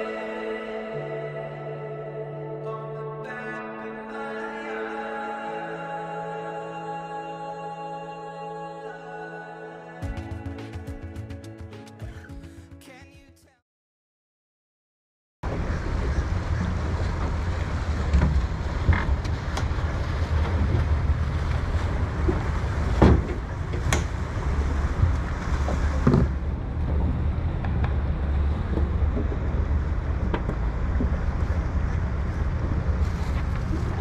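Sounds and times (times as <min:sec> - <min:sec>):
water washing along hull: 0:15.4 - 0:34.0
wind buffeting microphone: 0:15.4 - 0:34.0.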